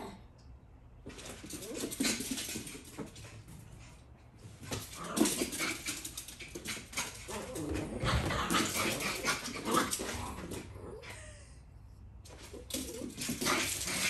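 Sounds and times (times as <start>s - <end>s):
dog claws skittering on hardwood: 1.0s - 3.5s, 4.6s - 10.7s.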